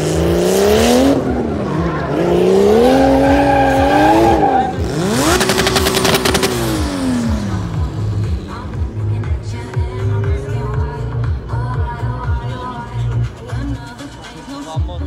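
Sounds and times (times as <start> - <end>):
car engine revving: 0.0 - 13.8
tyre squeal: 2.8 - 4.9.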